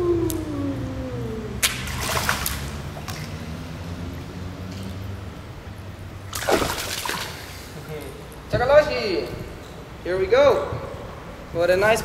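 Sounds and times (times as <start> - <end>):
steady low rumble: 0.0 - 4.4
fish splashing at water surface: 1.6 - 3.5, 6.3 - 7.8.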